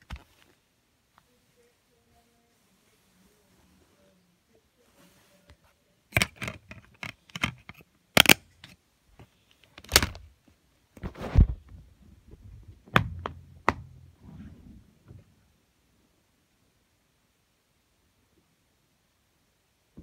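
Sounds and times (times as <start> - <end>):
plastic case clicks and clacks: 6.1 - 8.8, 9.8 - 10.3.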